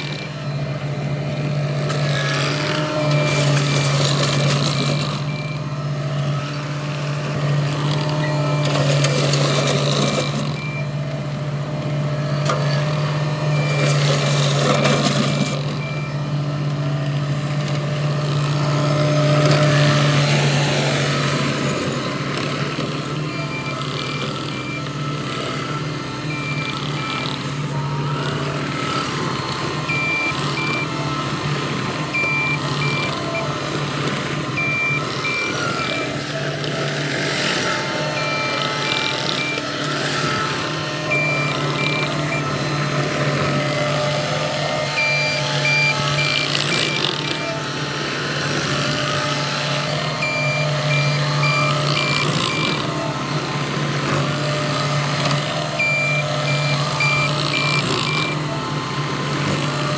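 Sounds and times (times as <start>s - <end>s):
reverse alarm beeps: 0.0s - 6.6s, 8.0s - 11.2s, 12.6s - 16.6s, 23.2s - 31.3s, 32.0s - 33.6s, 34.5s - 36.4s, 37.7s - 40.5s, 41.1s - 47.6s, 49.9s - 53.0s, 55.7s - 58.6s
diesel engine running: 0.0s - 59.9s.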